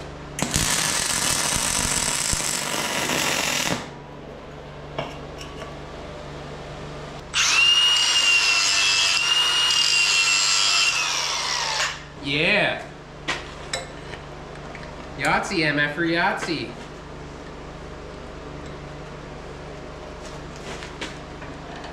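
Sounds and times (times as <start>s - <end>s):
welder crackling: 0.4s - 4.0s
angle grinder cutting steel: 7.3s - 12.1s.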